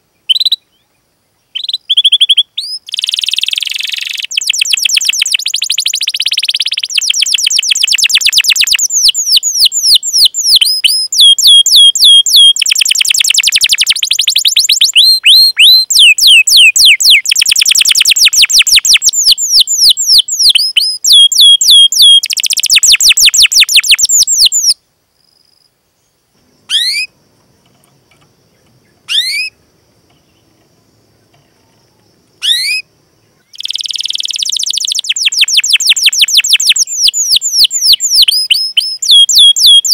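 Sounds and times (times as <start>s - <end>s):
canary singing trills: 0.1s - 24.8s, 26.6s - 39.9s
single rising chirps: 26.6s - 27.2s, 28.8s - 29.6s.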